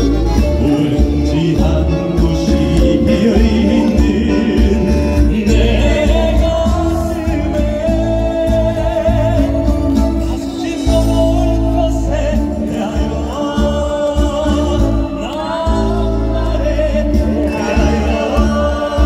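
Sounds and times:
band with sustained bass: 0.0s - 19.0s
man singing through a pa: 0.0s - 19.0s.

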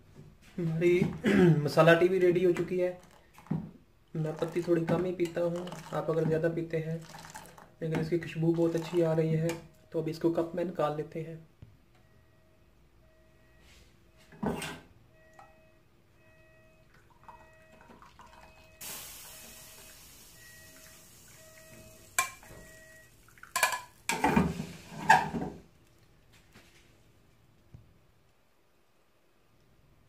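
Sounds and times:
tea pouring: 2.6s - 9.2s, 16.8s - 25.0s.

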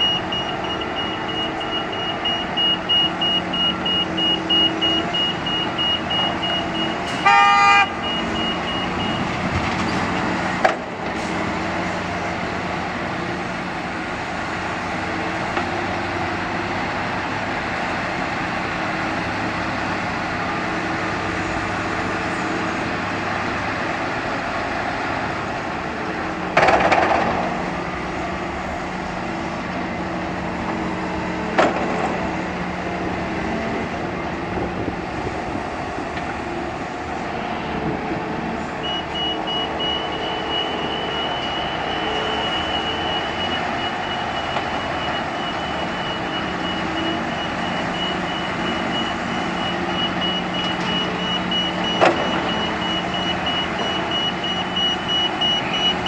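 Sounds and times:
reversing beeper: 0.0s - 9.9s, 38.5s - 56.0s
diesel engines running: 0.0s - 56.0s
vehicle horn toot: 7.1s - 8.0s.

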